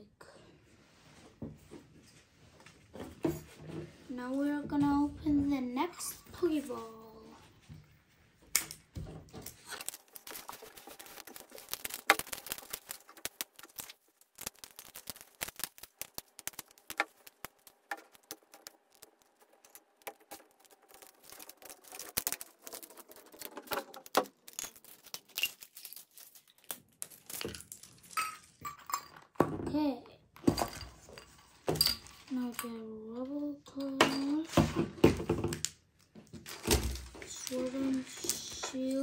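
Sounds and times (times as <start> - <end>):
plastic wrapping crinkling and tearing: 9.4 - 28.6, 35.4 - 39.0.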